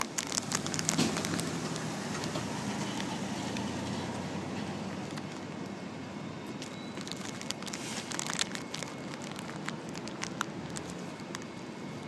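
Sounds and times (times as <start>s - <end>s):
crunching nuts while eating: 0.0s - 4.3s, 4.9s - 5.5s, 6.5s - 12.0s.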